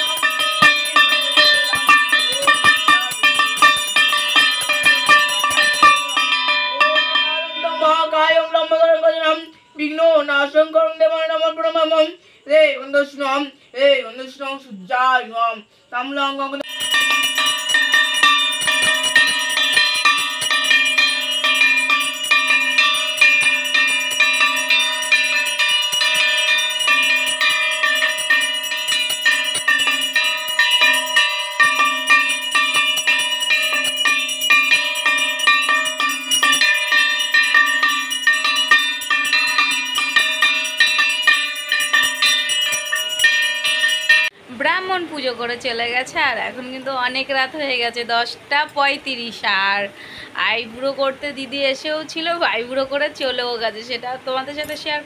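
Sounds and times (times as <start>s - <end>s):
hand bell ringing rapidly: 0.0s - 9.0s, 16.6s - 44.3s.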